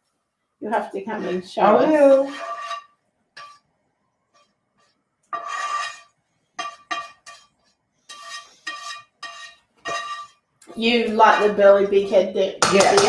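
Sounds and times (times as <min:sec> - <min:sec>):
spatula scraping frying pan: 0:01.1 - 0:03.7, 0:04.3 - 0:13.0
pan knocking against metal bowl: 0:12.6 - 0:13.0.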